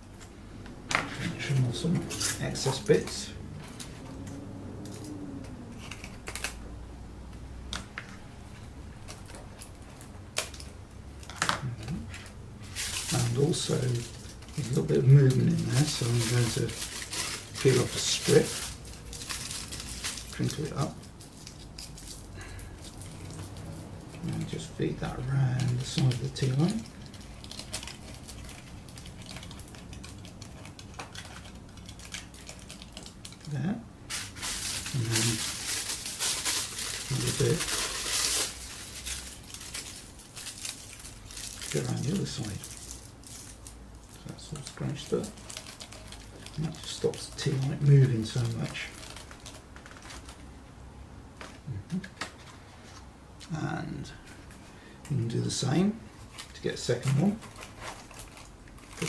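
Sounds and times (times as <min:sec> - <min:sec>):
scissors snipping foil: 0:12.7 - 0:23.6, 0:24.2 - 0:50.4.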